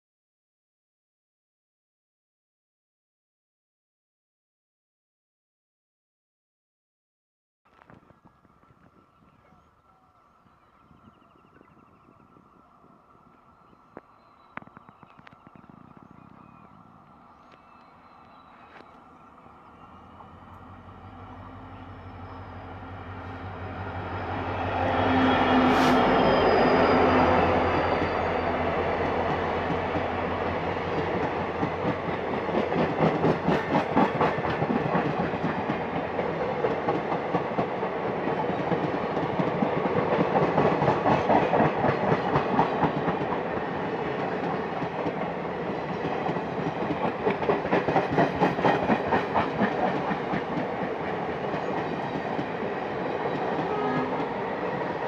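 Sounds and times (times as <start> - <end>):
diesel locomotive passing: 11.0 - 55.0
train wheels clickety-clack: 27.9 - 55.0.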